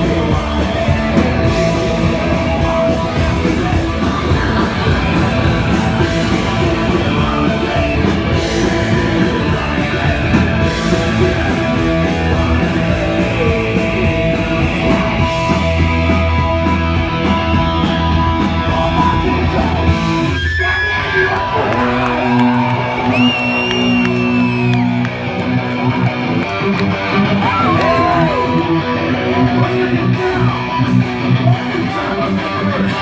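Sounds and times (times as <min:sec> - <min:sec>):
punk rock band playing: 0:00.0 - 0:33.0.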